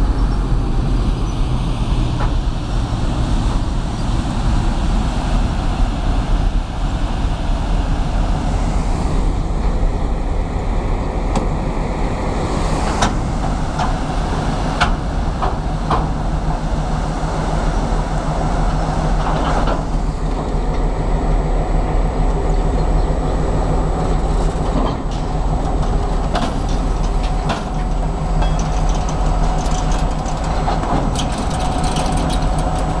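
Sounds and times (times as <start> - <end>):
diesel locomotive drone: 0.0 - 33.0
train wheels clicking over rail joints: 12.3 - 20.9, 22.4 - 33.0.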